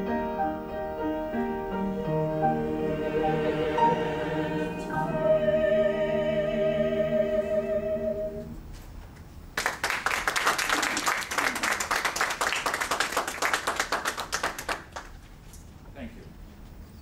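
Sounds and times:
vocal ensemble holding chord: 0.0 - 8.7
audience applauding: 9.6 - 15.2.

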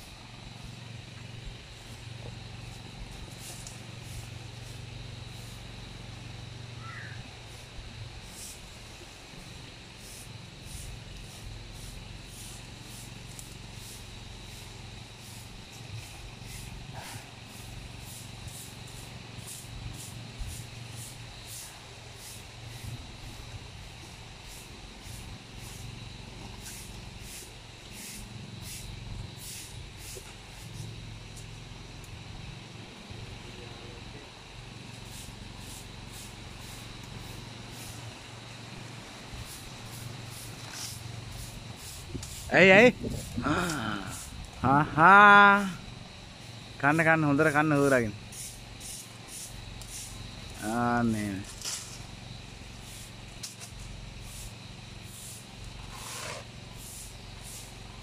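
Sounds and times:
leaves and branches rustling: 0.0 - 32.9, 34.7 - 44.8, 46.3 - 58.0
elephant stripping leaves: 2.8 - 4.8, 10.8 - 23.4, 39.5 - 42.5, 48.5 - 52.1, 52.9 - 57.8.

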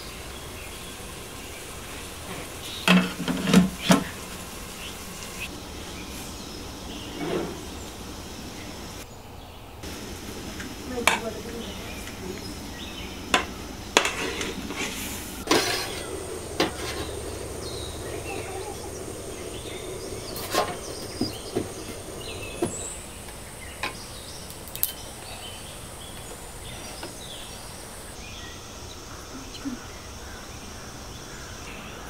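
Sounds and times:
metal utensils clinking on pots: 13.3 - 14.9
ladle stirring: 13.3 - 23.0.

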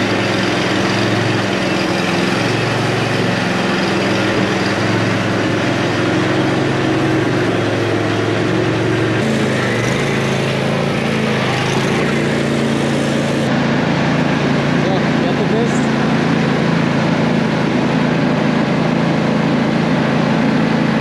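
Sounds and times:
riding mower engine running: 0.0 - 21.0.

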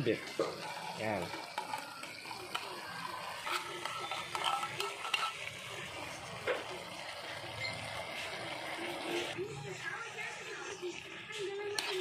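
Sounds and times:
light sizzle: 0.0 - 9.4
spatula stirring food in a pan: 0.1 - 12.0.

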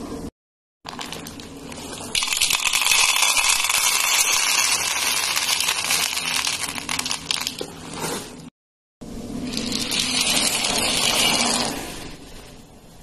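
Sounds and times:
dry pasta clattering onto plate: 2.1 - 7.8.

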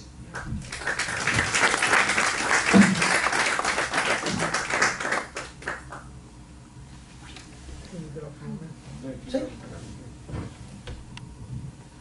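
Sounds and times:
audience applauding: 0.6 - 6.0.

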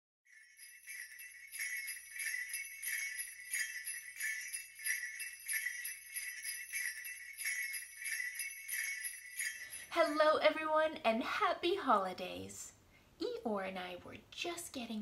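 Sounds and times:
sleigh bells jingling: 0.3 - 10.8.

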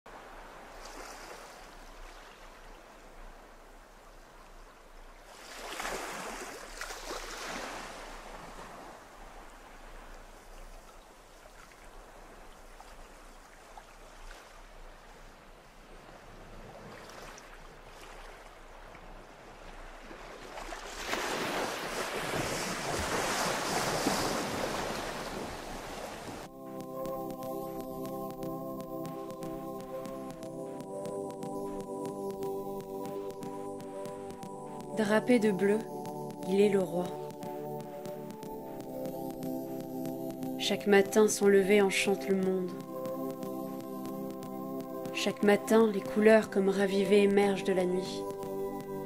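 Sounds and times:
sea waves washing in: 5.3 - 16.2, 19.4 - 47.1.

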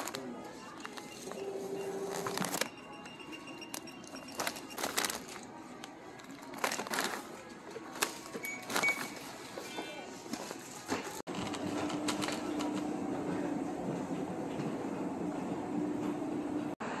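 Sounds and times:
store background hum: 0.0 - 17.0
plastic bags crinkling: 3.7 - 9.2.

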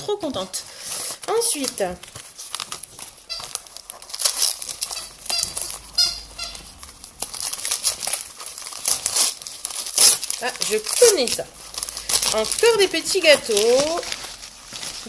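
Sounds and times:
wrapping paper crinkling: 0.4 - 15.0
short squeaky rasps: 3.2 - 8.3.

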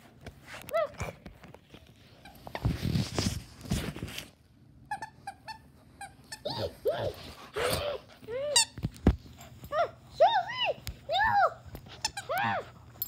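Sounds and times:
dog whining: 5.0 - 8.8.

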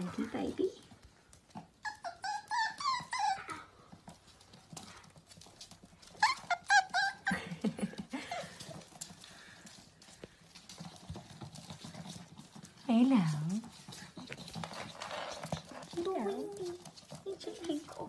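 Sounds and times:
puppies yipping: 1.4 - 9.6, 13.8 - 17.2
claws pattering on wooden floor: 3.0 - 18.0.

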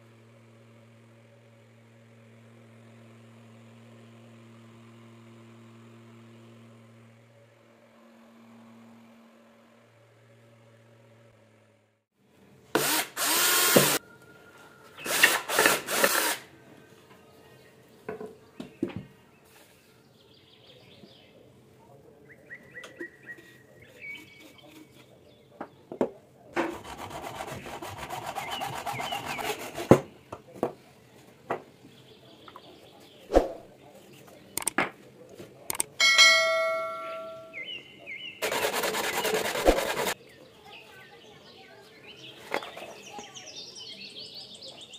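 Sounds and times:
pvc pipe scraping: 38.4 - 40.2
rubbing of plastic pipe: 38.4 - 40.2.

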